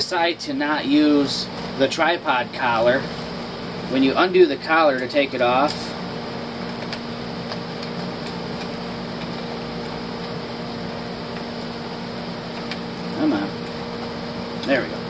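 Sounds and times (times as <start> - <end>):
fan hum and hiss: 0.0 - 15.0.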